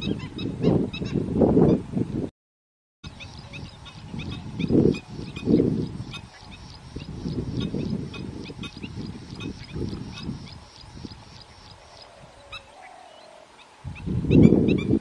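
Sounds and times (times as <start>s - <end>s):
waterbirds calling: 3.0s - 15.0s.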